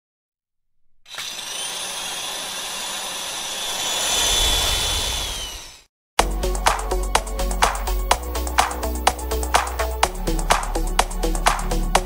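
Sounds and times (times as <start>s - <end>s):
rushing noise with whistling tones: 3.4s - 5.9s
low rumble: 3.9s - 5.8s.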